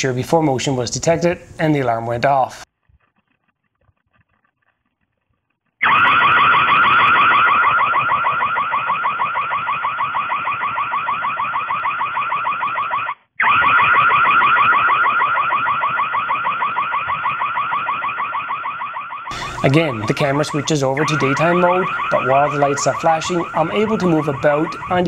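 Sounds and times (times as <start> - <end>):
high warbling alarm siren: 5.8 - 25.0.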